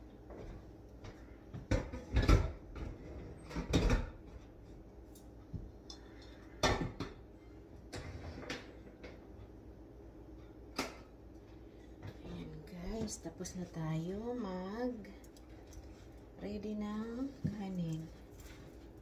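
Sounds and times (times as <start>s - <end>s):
kitchen things knocking and clattering: 1.5s - 4.4s, 6.6s - 7.2s.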